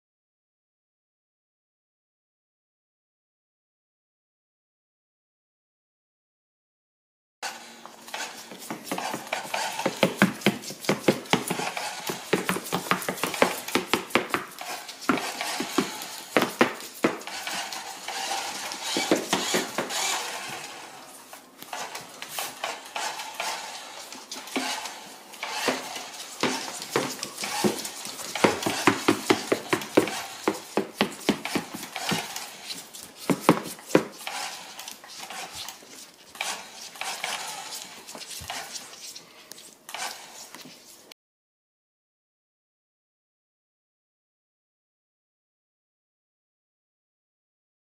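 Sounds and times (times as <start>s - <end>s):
toy truck moving on wooden floor: 7.4s - 41.1s
claws clicking on wooden floor: 8.1s - 20.9s, 21.6s - 40.8s.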